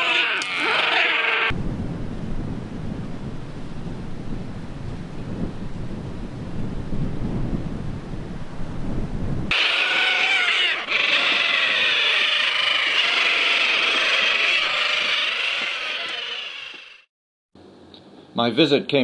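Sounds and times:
flock of birds calling: 0:00.0 - 0:01.5, 0:09.5 - 0:17.1
wind buffeting microphone: 0:01.5 - 0:16.2.

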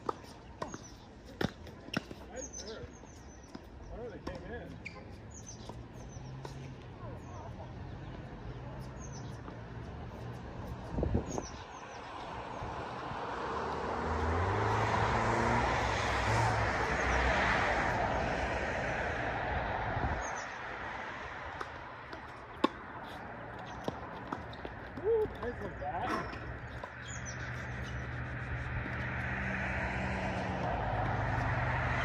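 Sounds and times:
vehicle passing: 0:05.4 - 0:32.0
birds chirping faintly: 0:22.9 - 0:28.7.

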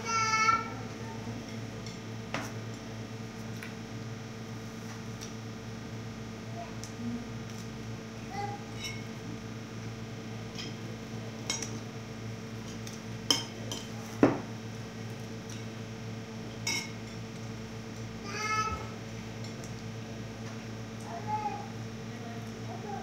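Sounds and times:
dishes and cutlery clinking: 0:13.3 - 0:13.9, 0:16.6 - 0:17.0.

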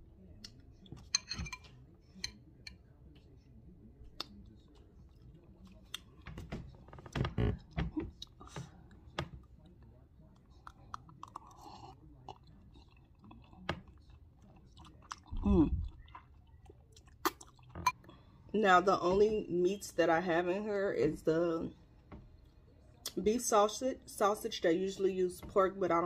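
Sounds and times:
wet mouth eating sounds: 0:08.2 - 0:18.0.

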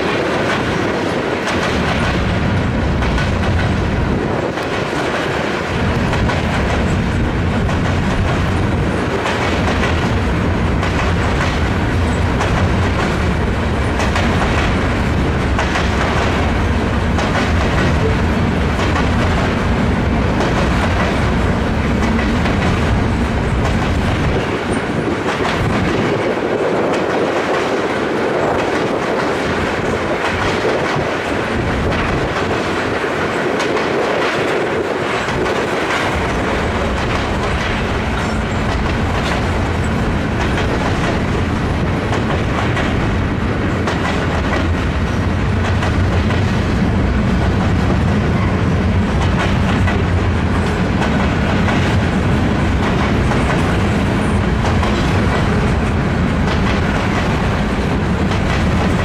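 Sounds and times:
freight train rumbling past: 0:00.0 - 0:59.0
wheels clicking over rail joints: 0:00.0 - 0:59.0.

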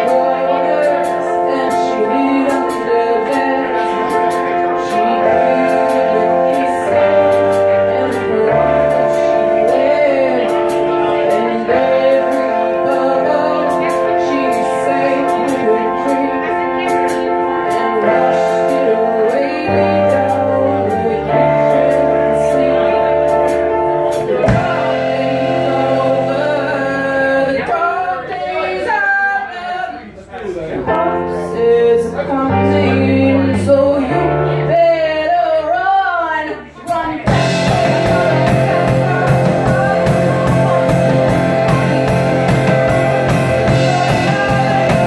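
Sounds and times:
electric bass: 0:00.0 - 0:27.8, 0:37.0 - 0:45.0
keyboard chords: 0:00.0 - 0:30.0, 0:30.8 - 0:45.0
woman singing lead vocal: 0:00.0 - 0:30.2, 0:30.9 - 0:45.0
drum kit with hi-hat: 0:20.0 - 0:26.9, 0:36.9 - 0:45.0.

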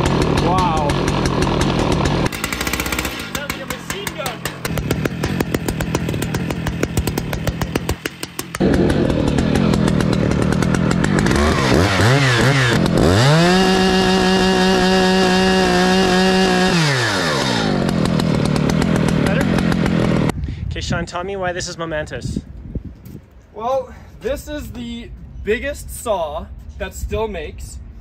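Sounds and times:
chainsaw engine revving: 0:00.0 - 0:20.3.

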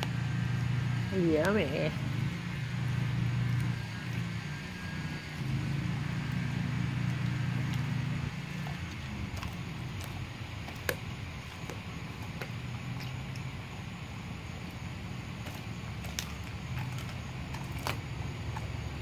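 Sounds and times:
dog chewing raw meat: 0:00.0 - 0:19.0
low steady hum: 0:00.0 - 0:19.0
bone crunching: 0:02.6 - 0:13.5, 0:14.5 - 0:18.8.

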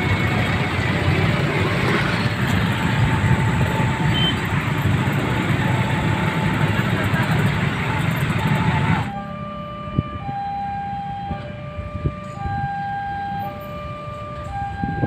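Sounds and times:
motorcycle and car engines: 0:00.0 - 0:10.5.

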